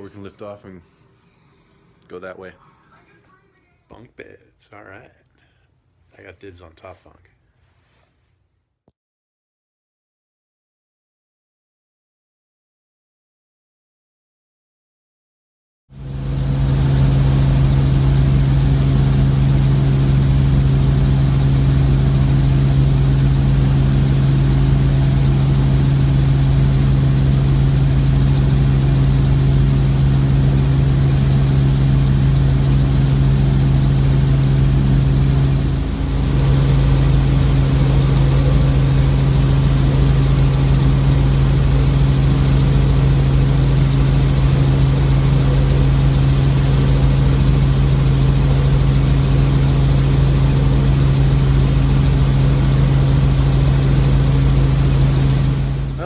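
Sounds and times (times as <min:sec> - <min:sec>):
helicopter engine and rotors droning: 0:16.0 - 0:56.0.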